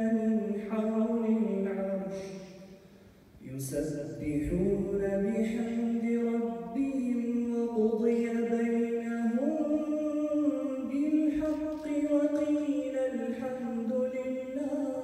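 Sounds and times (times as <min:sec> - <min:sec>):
man chanting recitation: 0:00.0 - 0:02.6, 0:03.4 - 0:15.0.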